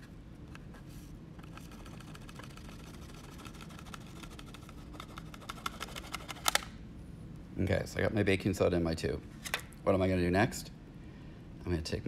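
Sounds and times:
low background hum: 0.0s - 12.0s.

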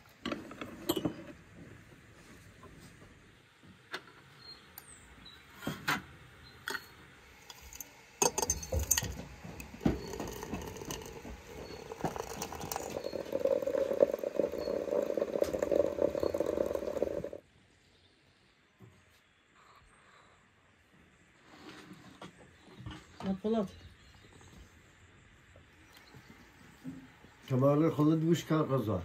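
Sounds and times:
hot water pouring into teapot: 7.4s - 17.4s
light clinks on glass teapot: 7.7s - 9.2s, 10.0s - 17.2s.

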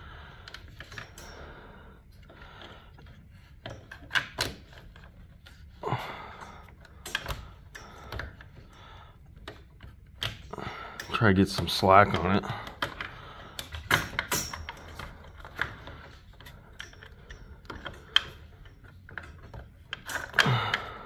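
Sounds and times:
drive chain clicks and knocks: 9.4s - 21.0s.

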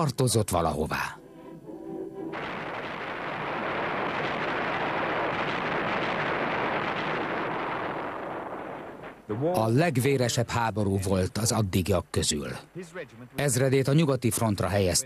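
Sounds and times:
shellfire rushing roar: 2.3s - 9.4s.

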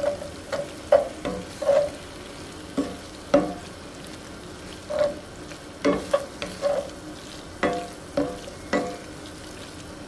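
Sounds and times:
meat sizzling: 0.0s - 10.0s
utensil clunking against skillet: 2.8s - 3.6s, 5.8s - 6.8s, 7.6s - 9.0s.

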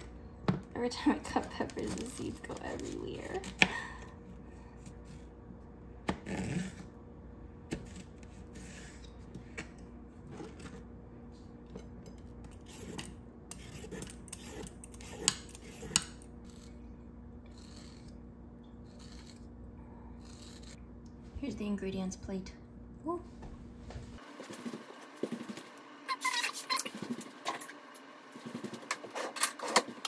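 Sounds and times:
peeler scraping carrot: 12.5s - 16.8s, 17.4s - 18.2s, 18.8s - 19.5s, 20.2s - 20.8s.

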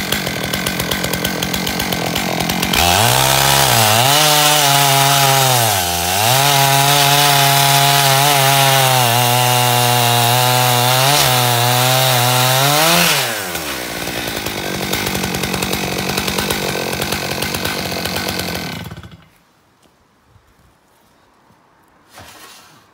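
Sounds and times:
chainsaw idling roughly: 0.0s - 7.0s, 11.7s - 19.2s
chainsaw cutting wood: 0.0s - 19.4s.

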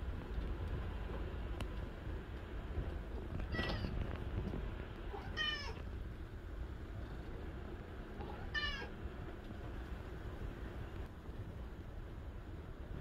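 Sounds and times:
steady low hum: 0.0s - 13.0s
cat meowing: 3.5s - 4.0s, 5.1s - 5.8s, 8.2s - 8.9s.

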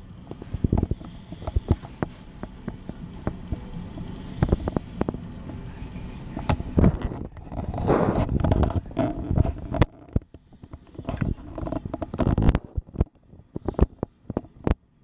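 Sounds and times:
microphone handling noise: 0.3s - 3.6s, 6.4s - 14.8s.

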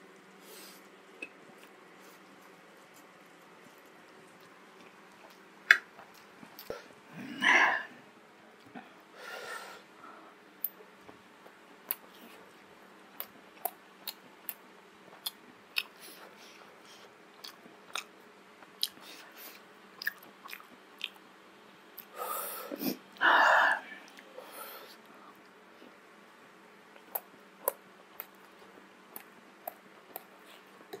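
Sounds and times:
person chewing: 1.5s - 6.8s, 13.1s - 16.3s, 16.9s - 21.2s, 27.0s - 31.0s.

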